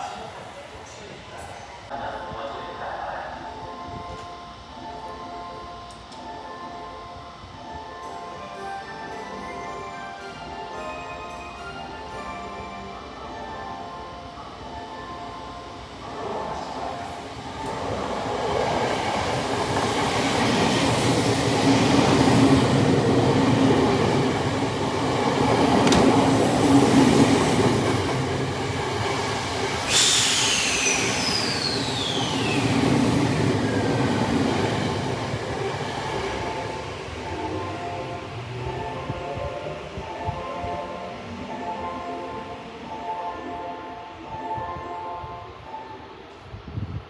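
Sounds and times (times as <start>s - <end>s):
train wheels on rails: 16.5s - 42.9s
high wheel squeal: 29.9s - 32.7s.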